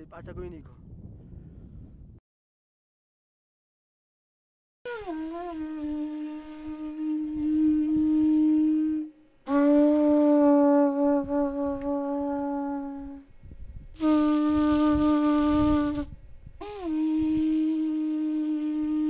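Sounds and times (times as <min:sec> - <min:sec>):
wind instrument low held notes: 0:04.9 - 0:19.0.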